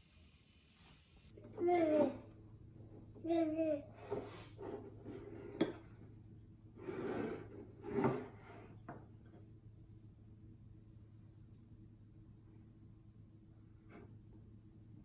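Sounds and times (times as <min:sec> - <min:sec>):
plastic tableware scraping: 0:03.9 - 0:06.0, 0:06.8 - 0:09.0.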